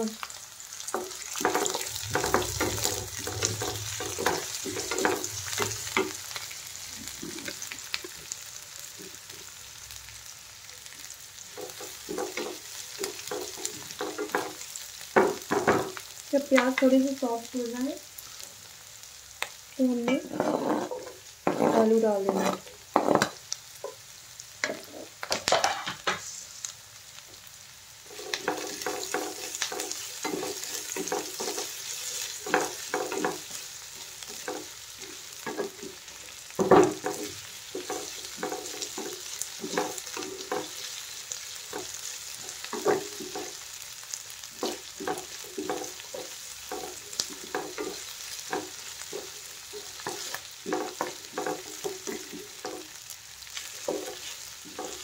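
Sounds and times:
vegetables sizzling in oil: 0.0s - 55.0s
wooden spatula scraping pan: 20.1s - 23.3s, 28.1s - 33.6s, 34.2s - 40.9s, 44.6s - 52.9s, 53.6s - 55.0s.

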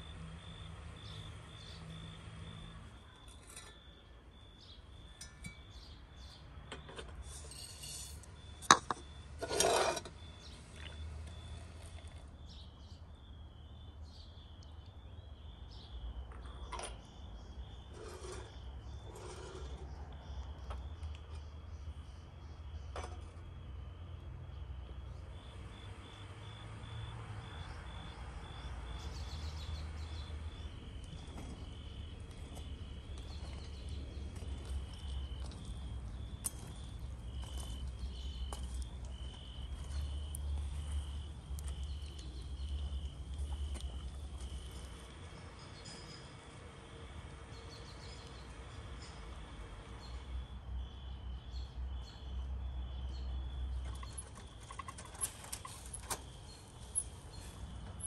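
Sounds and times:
crickets chirping: 0.0s - 58.0s.

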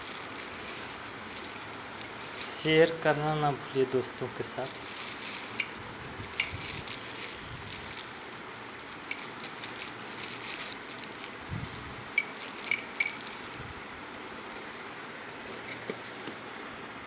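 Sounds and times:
plastic wrapping crinkling: 0.0s - 3.1s, 4.1s - 13.7s.

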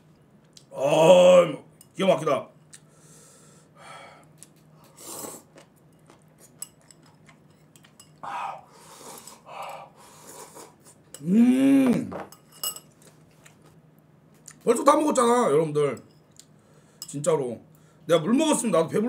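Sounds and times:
slurping noodles: 4.9s - 5.6s
man humming: 11.2s - 12.2s.

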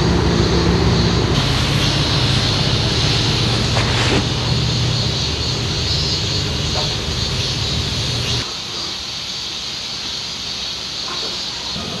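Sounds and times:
road traffic rumble: 0.0s - 8.5s
cicadas droning: 0.0s - 12.0s.

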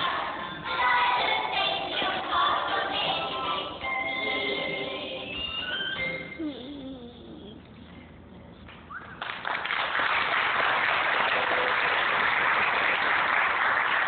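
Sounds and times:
audience applauding: 9.2s - 14.0s.

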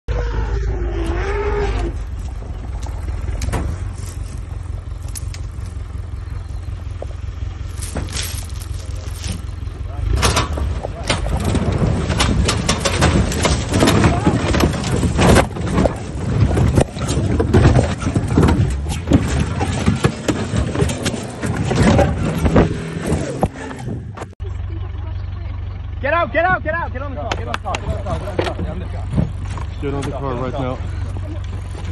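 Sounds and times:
elephant trumpeting: 0.1s - 2.1s
vehicle engine running: 0.1s - 31.9s.

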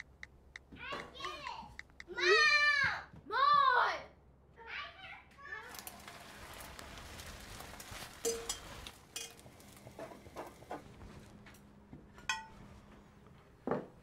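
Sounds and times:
pans and dishes clinking: 8.2s - 10.9s, 12.2s - 12.6s.

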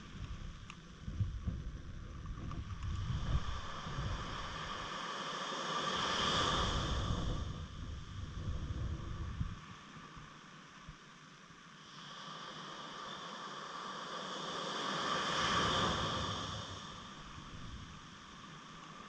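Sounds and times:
wind buffeting microphone: 0.0s - 4.9s, 6.5s - 9.6s.

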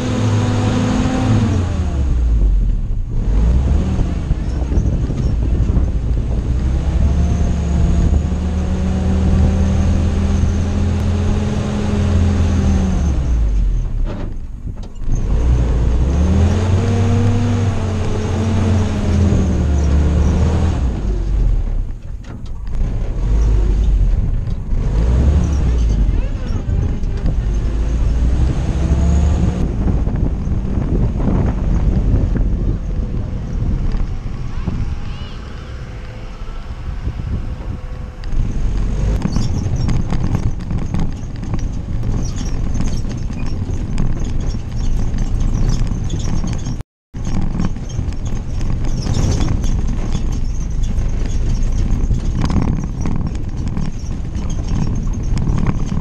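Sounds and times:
engine pulling under load: 0.0s - 56.0s
clattering and knocking of loose parts: 39.1s - 56.0s.

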